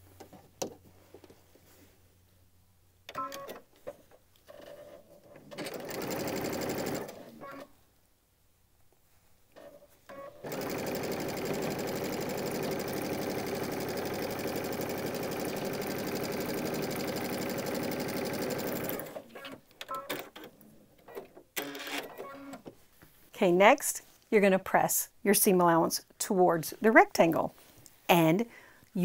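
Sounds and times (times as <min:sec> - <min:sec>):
sewing machine stitching: 0:04.5 - 0:07.7, 0:09.6 - 0:22.7.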